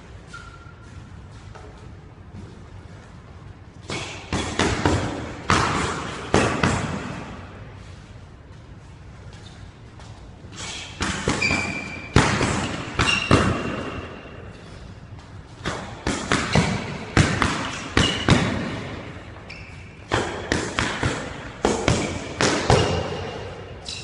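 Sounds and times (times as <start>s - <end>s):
sneaker squeaks: 0.0s - 3.0s, 7.8s - 21.3s, 21.9s - 24.0s.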